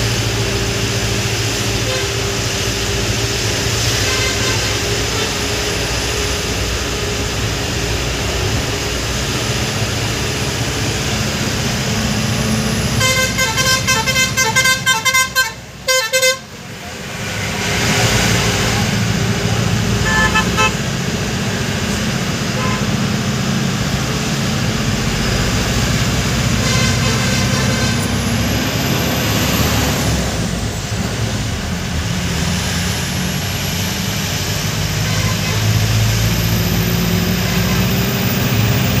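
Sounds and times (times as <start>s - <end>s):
road noise: 0.0s - 39.0s
truck engine running: 0.0s - 39.0s
short horn toots: 3.8s - 5.5s, 13.0s - 16.5s, 20.0s - 20.8s, 22.6s - 23.0s, 26.6s - 28.2s, 35.0s - 35.8s.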